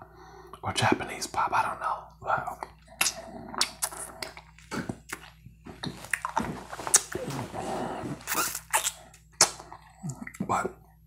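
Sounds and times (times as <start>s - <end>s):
wet mouth clicks and smacks: 2.6s - 7.2s, 8.3s - 10.5s.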